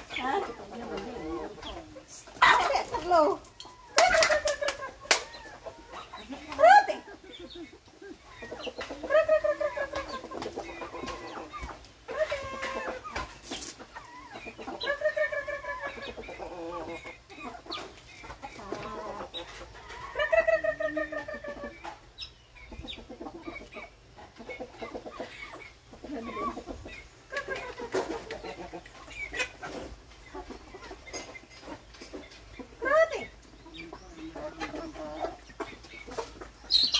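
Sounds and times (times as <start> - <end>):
chickens clucking: 0.0 - 36.9
drawn-out chicken calls: 0.0 - 36.9.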